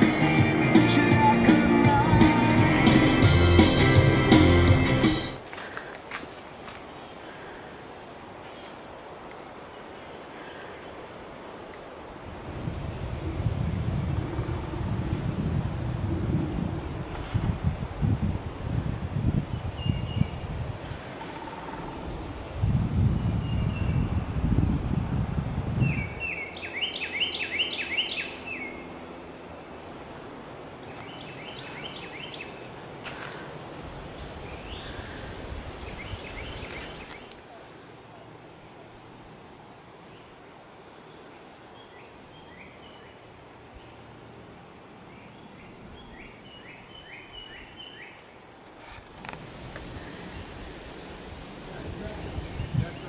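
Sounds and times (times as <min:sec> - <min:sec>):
insect pulsing buzz: 0:12.0 - 0:26.3, 0:27.0 - 0:53.0
low rumble: 0:12.6 - 0:18.0
songbirds calling: 0:19.5 - 0:24.2, 0:25.8 - 0:29.0, 0:30.8 - 0:38.8, 0:45.0 - 0:48.4, 0:49.0 - 0:53.0.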